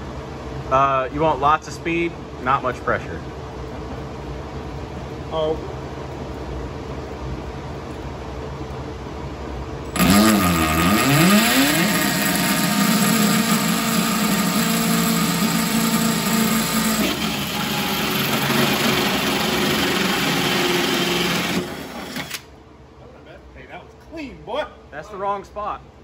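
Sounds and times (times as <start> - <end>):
drill hole saw cutting metal: 9.9 - 22.4.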